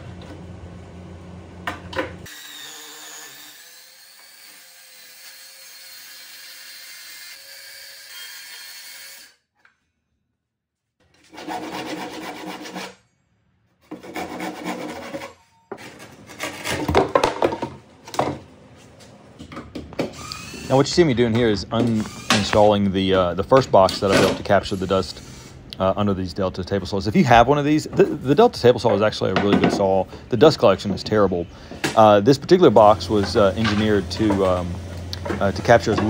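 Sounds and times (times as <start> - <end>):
workshop hum: 0.0 - 36.0
hand tool sawing plywood: 11.2 - 13.0, 13.9 - 16.9.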